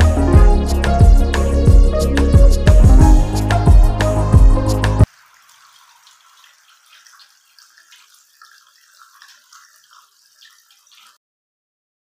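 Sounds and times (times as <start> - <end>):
water trickling and splashing: 3.2 - 11.2.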